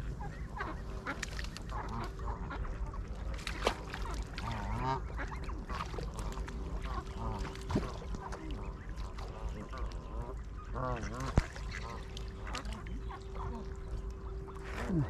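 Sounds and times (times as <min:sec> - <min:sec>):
geese honking: 0:00.0 - 0:03.0, 0:03.9 - 0:14.9
ducks quacking: 0:00.0 - 0:15.0.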